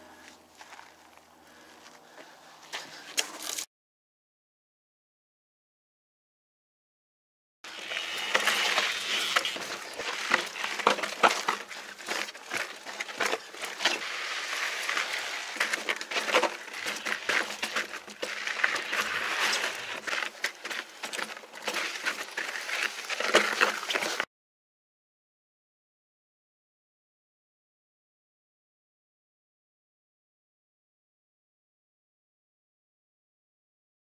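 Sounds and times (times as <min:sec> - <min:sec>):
tyres crunching on rocky trail: 0:00.0 - 0:03.7, 0:07.7 - 0:24.3
bike clicks and rattles: 0:02.8 - 0:03.7, 0:07.7 - 0:24.3.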